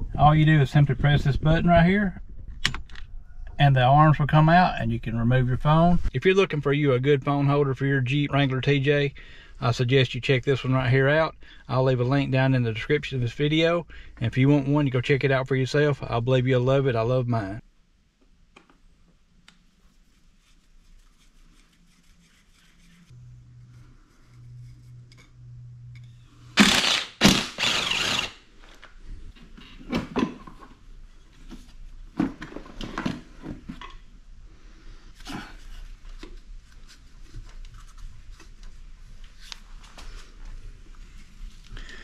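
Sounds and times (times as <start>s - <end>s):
low hum: 22.9s - 28.4s.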